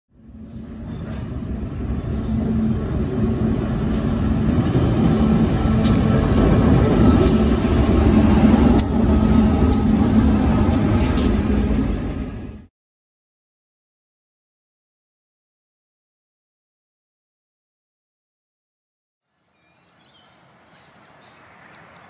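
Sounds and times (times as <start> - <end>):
locomotive engine rumble: 0.2 - 12.7
sharp clicks from passing train: 0.4 - 12.3.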